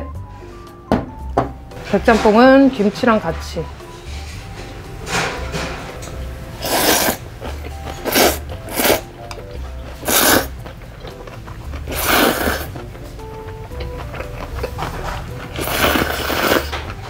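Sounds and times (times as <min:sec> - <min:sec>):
light background music: 0:00.0 - 0:17.0
person slurping noodles: 0:06.6 - 0:09.2, 0:09.9 - 0:10.7, 0:11.3 - 0:12.9, 0:14.6 - 0:16.7.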